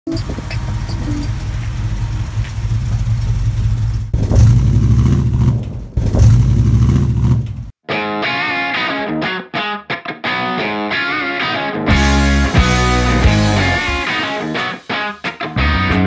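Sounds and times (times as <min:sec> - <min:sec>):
truck engine droning and revving: 0:00.1 - 0:07.7
electric guitar music: 0:07.8 - 0:16.0.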